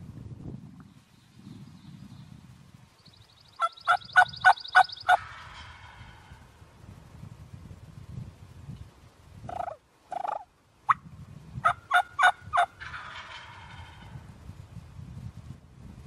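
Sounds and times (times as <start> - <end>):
turkey calling: 3.6 - 6.4, 9.5 - 11.0, 11.6 - 14.2
turkey gobble: 3.6 - 6.4, 9.5 - 11.0, 11.6 - 14.2.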